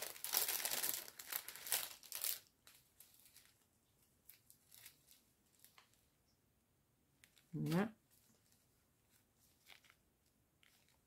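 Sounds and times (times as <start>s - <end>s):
plastic bags crinkling: 0.0s - 6.0s, 9.2s - 10.0s.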